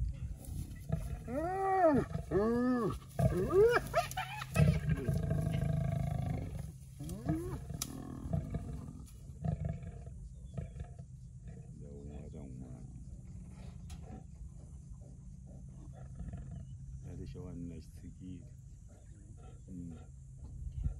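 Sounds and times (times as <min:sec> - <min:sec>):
hyenas yelping: 0:00.9 - 0:08.9.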